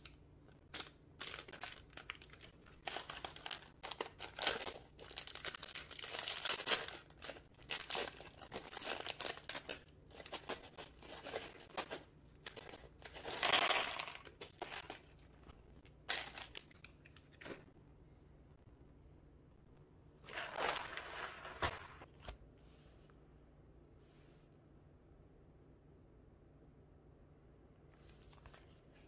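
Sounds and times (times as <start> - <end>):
plastic bag crinkling: 0.7 - 15.0, 20.3 - 22.1
plastic pieces spilling into box: 20.3 - 22.0.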